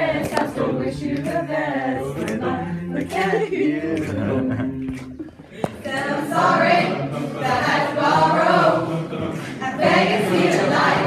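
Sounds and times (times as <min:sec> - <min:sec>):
group singing unaccompanied: 0:00.0 - 0:11.0.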